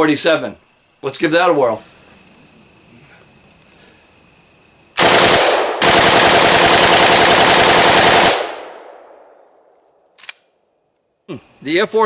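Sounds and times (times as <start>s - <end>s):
rifle firing rapidly: 5.0s - 8.9s.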